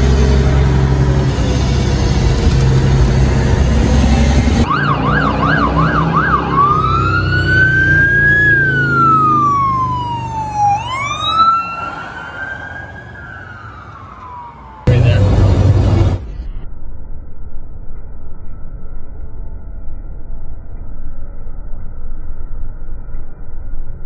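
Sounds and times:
truck engine running: 0.0s - 7.0s, 14.8s - 16.5s
ambulance siren yelp and wail: 3.5s - 16.0s.

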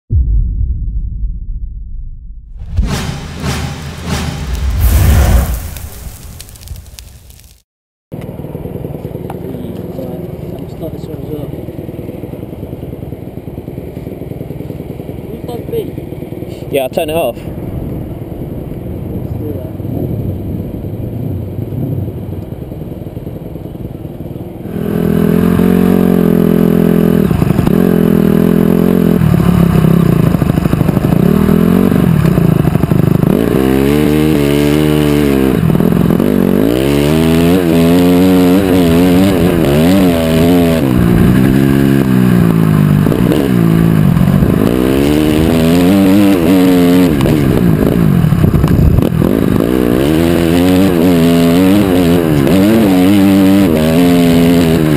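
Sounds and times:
quiet low rumble: 0.1s - 7.5s
dirt bike engine revving: 8.3s - 54.9s.

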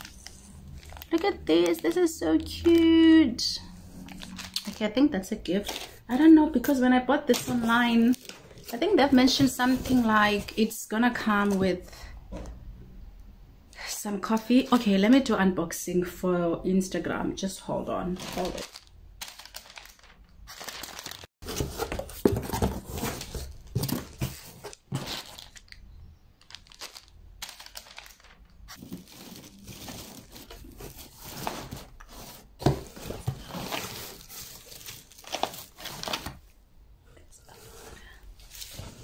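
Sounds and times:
paper rustling and crinkling: 0.0s - 2.1s, 4.0s - 4.8s, 7.3s - 10.6s, 18.2s - 25.7s, 26.4s - 36.4s, 37.5s - 39.0s.

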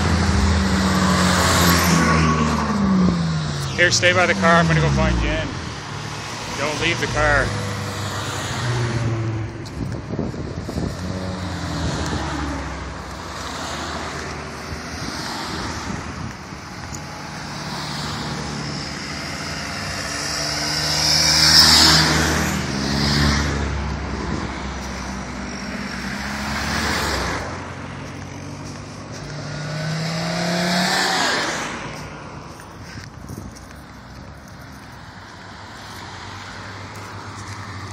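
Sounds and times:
cars driving past: 0.0s - 37.9s
car accelerating past: 17.2s - 32.0s.

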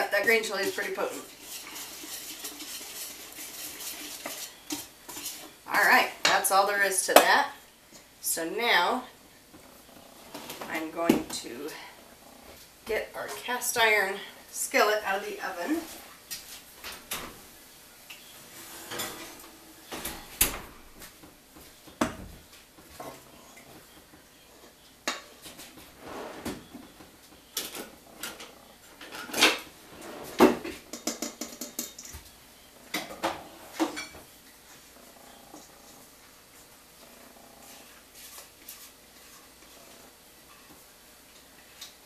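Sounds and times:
spoon scraping in metal bowl: 0.3s - 5.6s.

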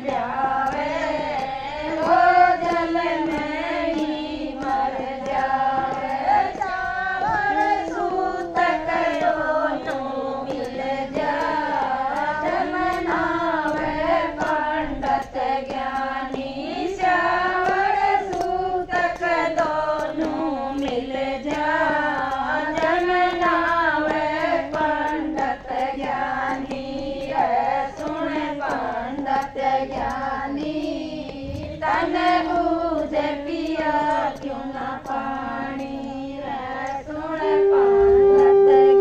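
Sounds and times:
women singing together: 0.0s - 39.0s
loud steady blown note: 36.9s - 39.0s.

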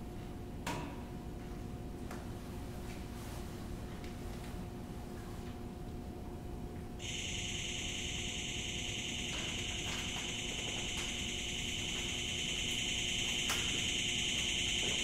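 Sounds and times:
low steady hum: 0.0s - 15.0s
high-pitched electronic hiss: 7.0s - 15.0s.

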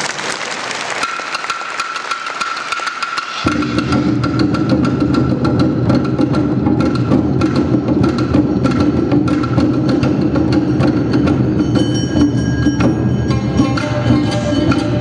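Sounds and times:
lower musical accompaniment: 3.4s - 15.0s.

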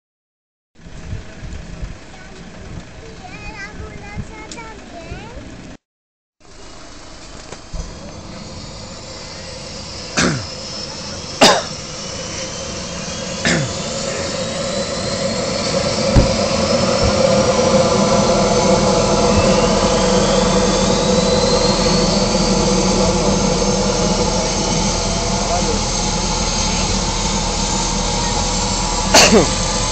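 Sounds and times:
helicopter engines spooling up: 6.4s - 29.9s.

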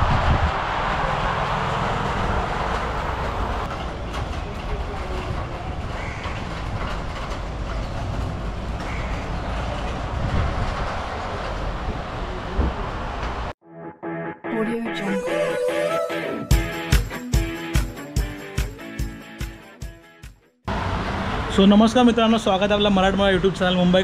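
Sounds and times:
train rumbling: 0.0s - 13.6s
train wheels clicking: 2.6s - 12.0s.

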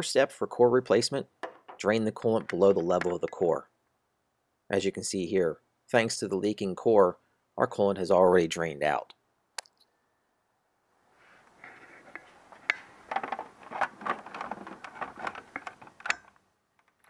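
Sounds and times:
faint rustling and scraping: 11.1s - 17.0s.

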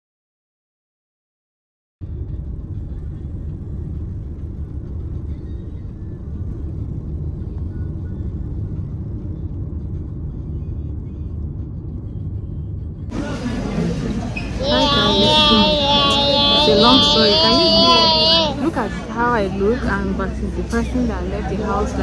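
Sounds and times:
road noise: 5.9s - 22.0s.

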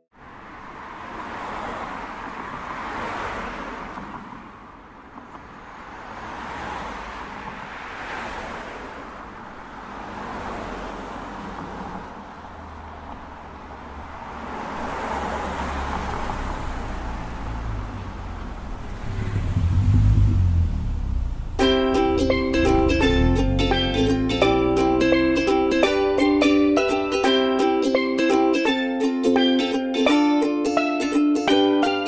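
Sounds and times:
cars passing: 0.1s - 32.0s
low rumble: 18.2s - 24.3s.

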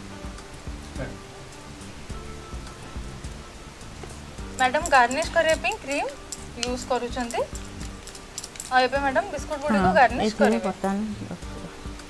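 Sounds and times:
hot oil sizzling and crackling: 0.0s - 12.0s.

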